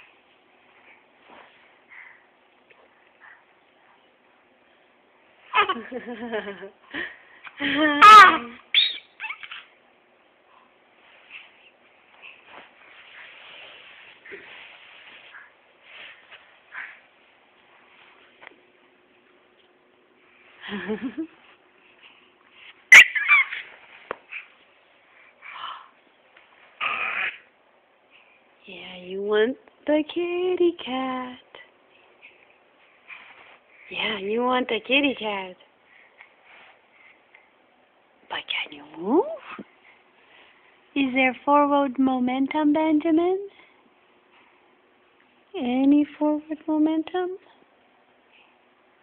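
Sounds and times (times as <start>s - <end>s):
baby babbling and laughing: 8.0s - 9.8s, 22.9s - 23.7s, 26.8s - 27.5s
baby babbling: 26.8s - 27.4s.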